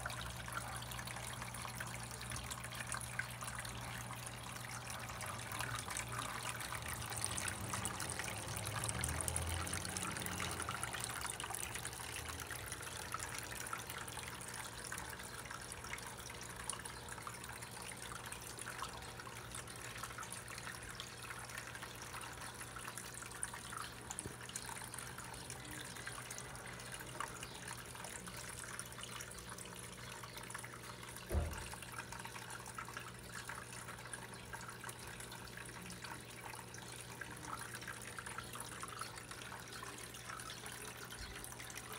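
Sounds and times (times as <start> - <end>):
small waterfall trickling over rocks: 0.0 - 41.9
soft thump: 31.3 - 31.6.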